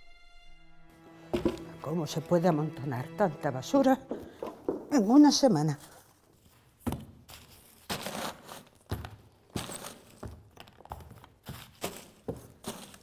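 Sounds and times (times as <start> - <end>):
paper rustling and crumpling: 5.7 - 9.0, 9.6 - 13.0.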